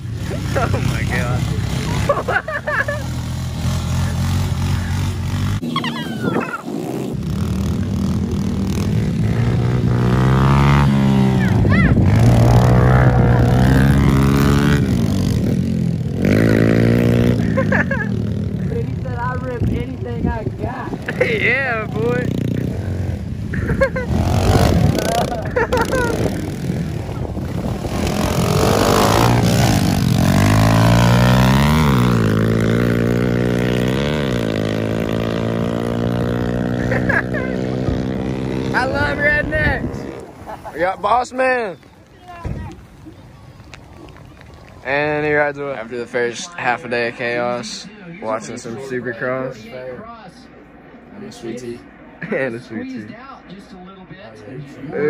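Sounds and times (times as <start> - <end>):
dirt bike engine revving: 0.0 - 40.7.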